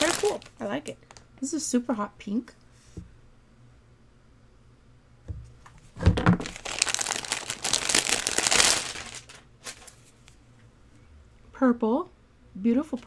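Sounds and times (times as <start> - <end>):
packaging crinkling: 0.0 - 1.3, 6.2 - 10.1.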